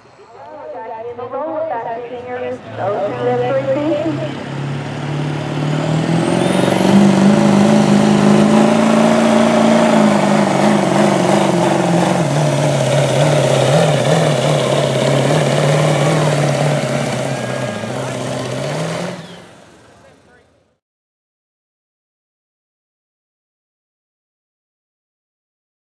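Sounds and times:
diesel engine at high revs: 2.2 - 20.8.

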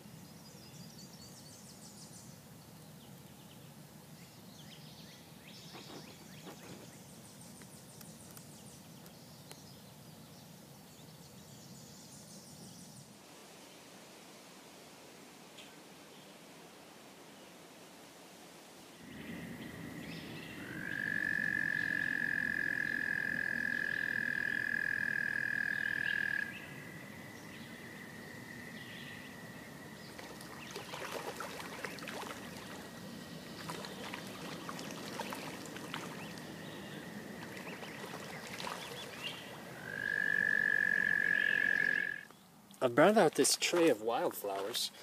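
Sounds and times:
toad trilling: 20.6 - 26.6, 39.7 - 42.3
distant toad trilling: 20.6 - 26.9, 35.7 - 42.3.

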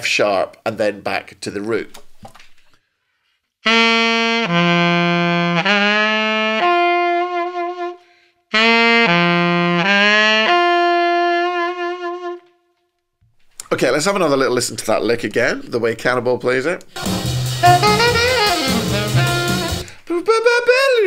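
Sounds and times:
alto saxophone solo: 3.6 - 12.9, 17.0 - 20.0.

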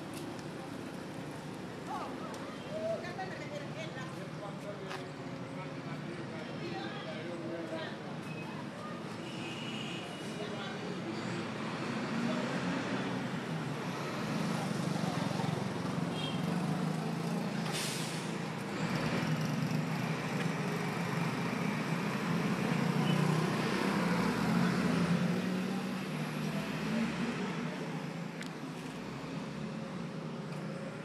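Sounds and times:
road noise: 0.0 - 31.0
short hiss: 17.6 - 18.4.

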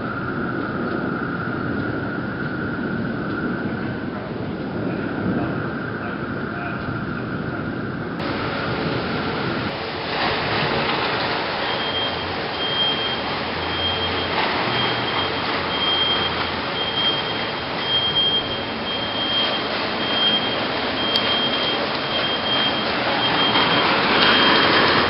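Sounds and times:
heavy rain and wind: 0.0 - 25.0
high electronic beep: 11.7 - 24.8.

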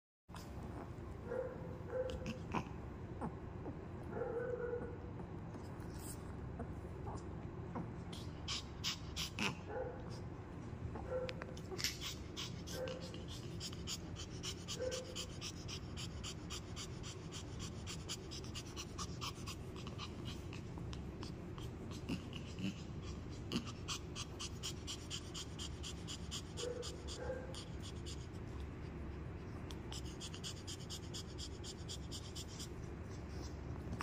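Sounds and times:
dog panting: 5.2 - 10.4, 11.0 - 34.0
dog whimpering: 7.8 - 9.7, 11.6 - 28.3.

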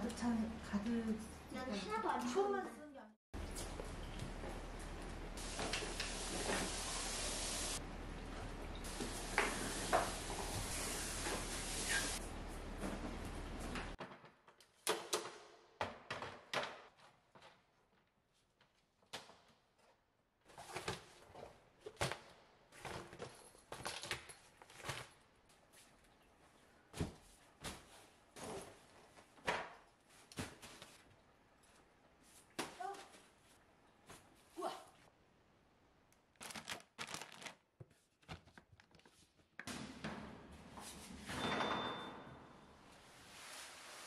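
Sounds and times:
plastic and paper packaging rustling: 36.3 - 39.4.

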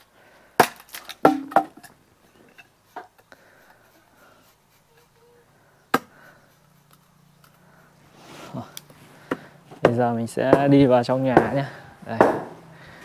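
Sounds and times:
firewood being chopped: 0.6 - 1.9, 5.9 - 6.2, 9.2 - 12.6.

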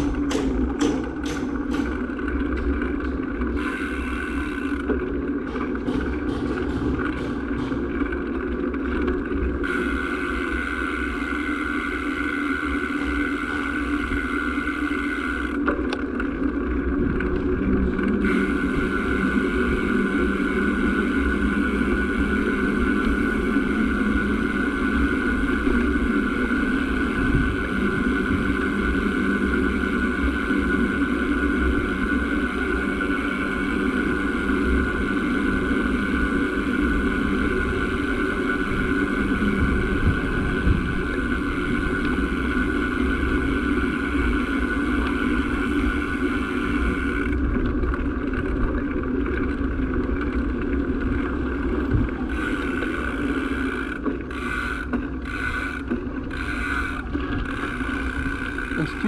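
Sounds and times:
vehicle engine droning: 0.0 - 59.0.

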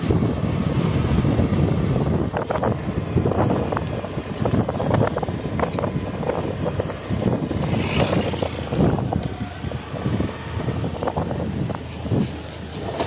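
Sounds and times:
motorbike running: 0.0 - 13.0
wind buffeting microphone: 0.0 - 13.0.

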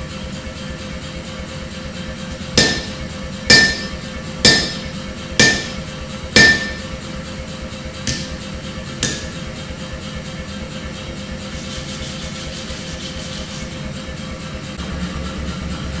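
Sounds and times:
steady hum: 2.2 - 9.8
hammer ringing on anvil: 2.6 - 7.0, 8.1 - 9.6.

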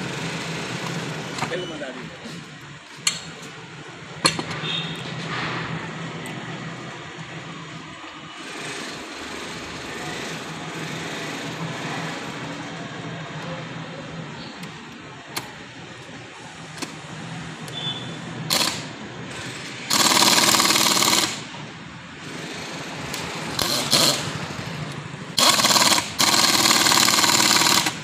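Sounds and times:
pneumatic air hammer bursts: 17.7 - 21.5, 22.2 - 28.0.

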